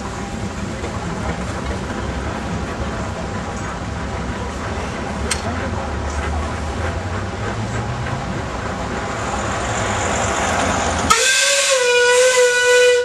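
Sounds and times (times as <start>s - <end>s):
steam tractor rumbling: 0.0s - 13.0s
shrill steam whistle: 11.1s - 13.0s.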